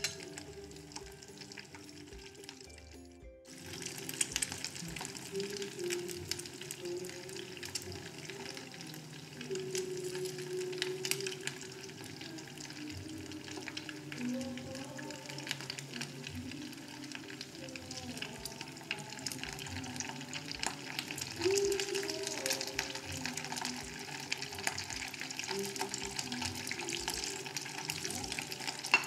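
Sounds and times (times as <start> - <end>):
oil sizzling in frying pan: 0.0 - 29.0.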